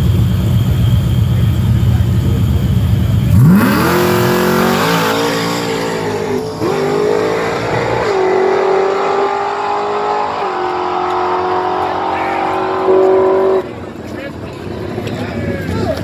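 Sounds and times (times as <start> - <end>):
race cars accelerating hard: 3.2 - 14.0.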